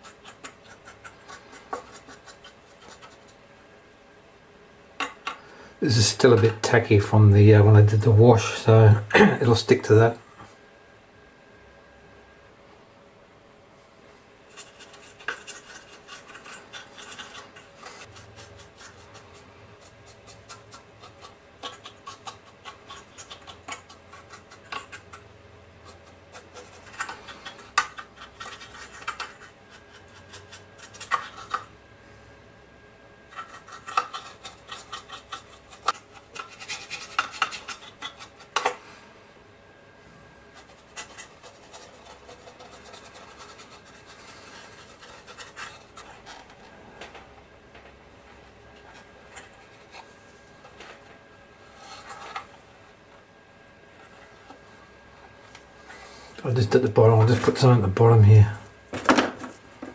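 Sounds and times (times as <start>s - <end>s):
paintbrush scratching on plastic: 0.0s - 3.4s, 14.5s - 25.2s, 25.8s - 31.7s, 33.3s - 38.6s, 40.5s - 46.6s.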